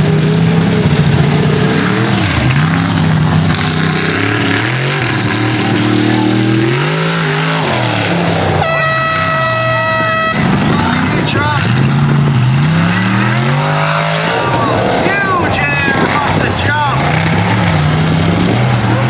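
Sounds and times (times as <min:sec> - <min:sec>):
truck engine revving: 0:00.0 - 0:19.0
high horn-like tone: 0:08.6 - 0:10.5.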